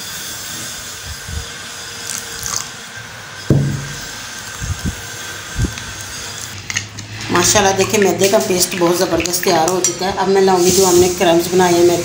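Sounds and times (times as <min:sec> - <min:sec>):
sharp thump: 0:03.5 - 0:04.0.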